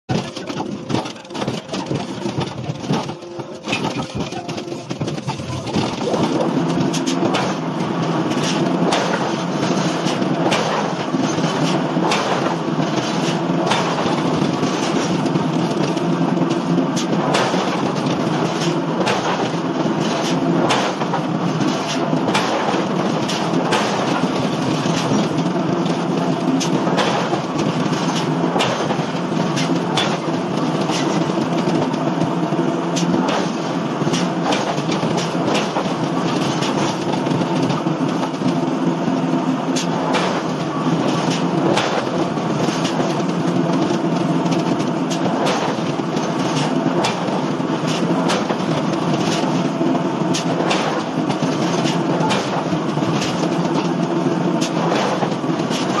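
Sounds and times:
metallic clicks and clanks: 0.1 - 32.2
forging machinery humming: 0.1 - 56.0.

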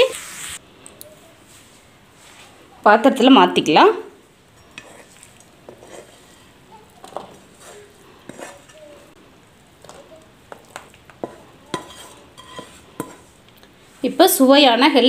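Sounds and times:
spatula scraping and knocking pan: 4.6 - 9.2, 9.8 - 13.4.

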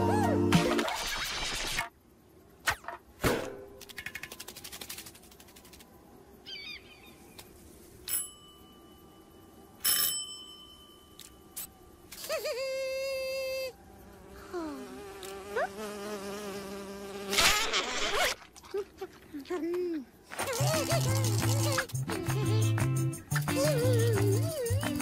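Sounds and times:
squeaky chirps: 20.4 - 25.0.

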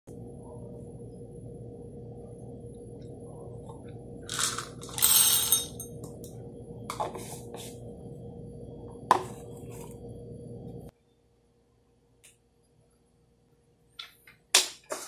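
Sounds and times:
coffee beans rattling into grinder: 4.3 - 5.9.

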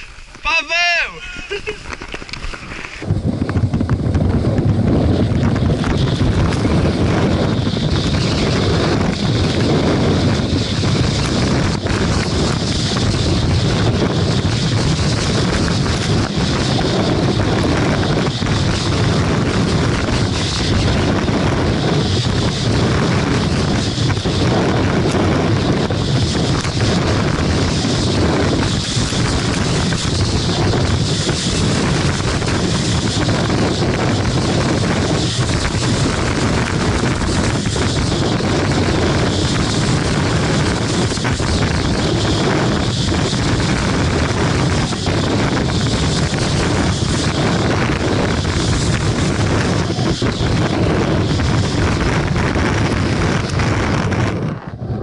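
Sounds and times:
skis sliding on snow: 0.0 - 3.2, 5.1 - 53.8
wind buffeting microphone: 0.0 - 55.0.

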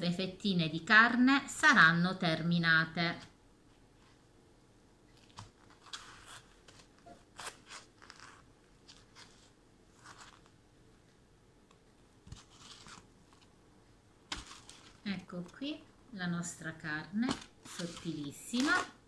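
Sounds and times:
breadcrumbs crunching and rustling: 5.2 - 10.6, 12.3 - 13.5, 14.3 - 15.1, 17.4 - 18.9.

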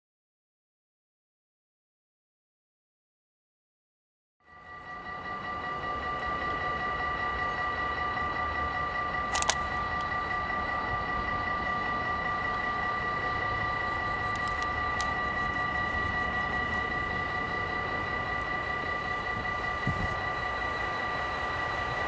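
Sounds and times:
locomotive high whining tones: 4.4 - 22.0
train rumble: 4.5 - 22.0
sharp click: 9.3 - 9.7.

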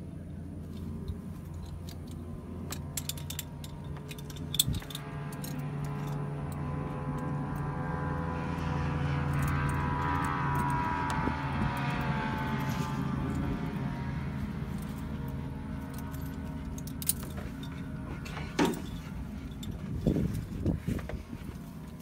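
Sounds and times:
helicopter turbine engine whine: 0.0 - 22.0
metallic clicks of buckles: 0.7 - 7.7, 14.7 - 21.2.

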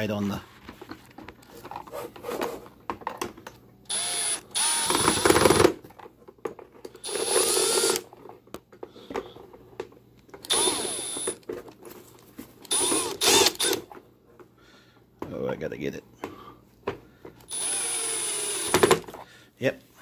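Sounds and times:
cordless drill driving screws: 3.9 - 5.7, 7.0 - 8.1, 10.4 - 11.4, 12.7 - 13.8, 17.5 - 19.1.

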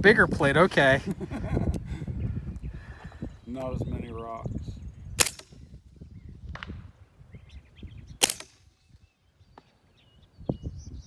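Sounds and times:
birds chirping: 0.0 - 11.0
sharp crack: 5.2 - 5.5, 8.2 - 8.8
suppressed gunshot: 5.2 - 5.6, 6.5 - 6.9, 8.2 - 8.7.

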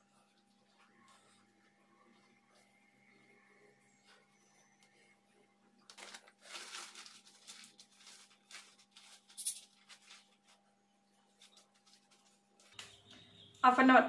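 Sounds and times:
shower cap crinkling: 5.9 - 10.4.

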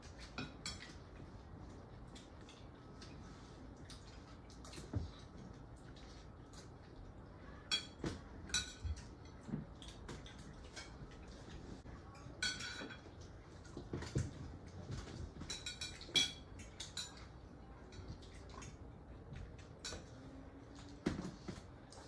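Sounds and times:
cutlery clinking on plates: 7.7 - 9.4, 12.2 - 13.1, 15.0 - 17.3.

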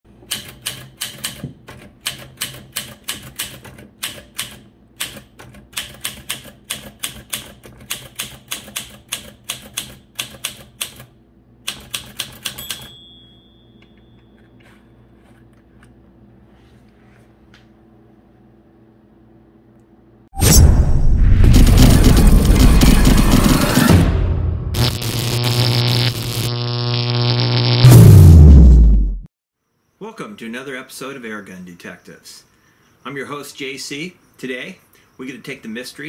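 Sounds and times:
typewriter key strikes: 11.7 - 13.0
faint typewriter bell ring: 12.4 - 15.1.

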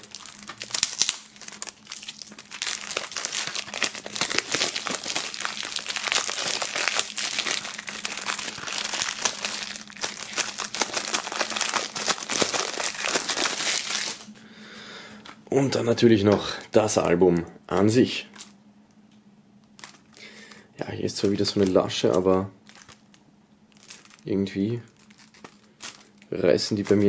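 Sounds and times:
plastic shrink-wrap crinkling: 0.0 - 14.3, 19.7 - 20.3, 21.1 - 27.0.

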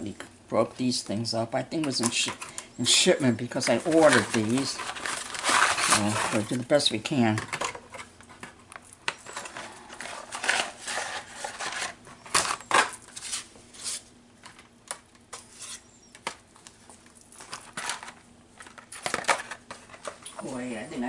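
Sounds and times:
dry pasta sheets clattering: 1.8 - 8.6, 9.2 - 14.0
cardboard box rustling: 3.6 - 6.8.

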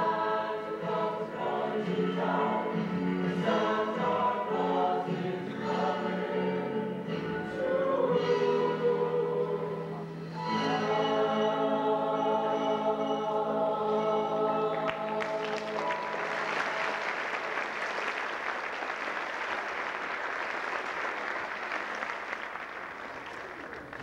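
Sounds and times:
choir holding chord: 0.0 - 17.4
audience applause: 14.8 - 24.0.

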